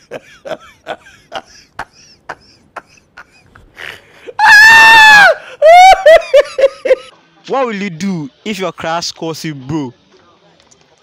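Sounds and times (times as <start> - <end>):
man laughing hard: 0.0 - 7.1.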